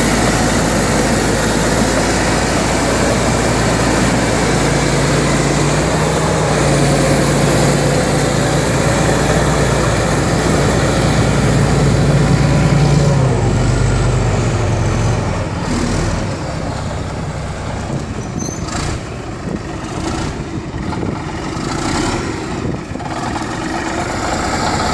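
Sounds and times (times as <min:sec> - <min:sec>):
bulldozer diesel engine running: 0:00.0 - 0:24.9
steel tracks clanking: 0:17.6 - 0:19.2.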